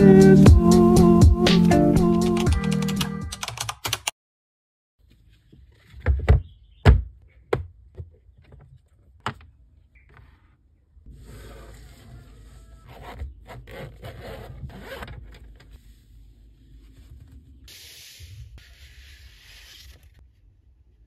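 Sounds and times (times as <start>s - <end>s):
zipper pulled open: 11.1s - 15.4s
paper pad in plastic sleeve: 17.7s - 20.2s.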